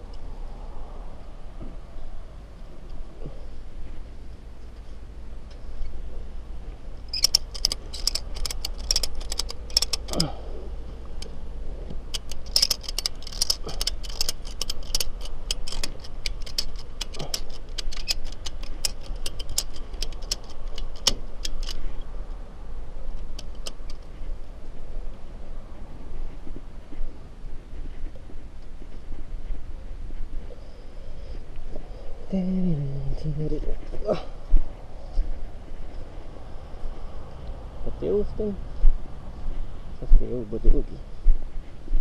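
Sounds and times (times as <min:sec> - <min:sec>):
low steady drone: 0:00.0 - 0:42.0
metal jingling and rattling: 0:07.1 - 0:10.2, 0:12.0 - 0:22.0.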